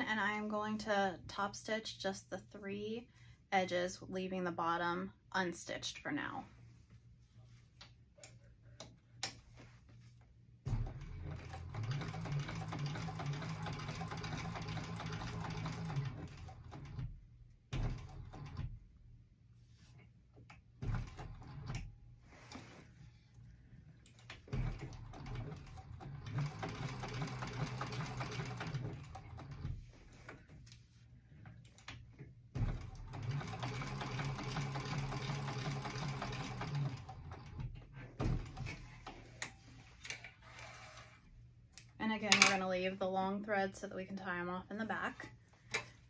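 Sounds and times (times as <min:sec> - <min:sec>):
industrial sewing machine stitching: 0:10.7 - 0:17.2, 0:24.4 - 0:29.8, 0:32.6 - 0:39.0.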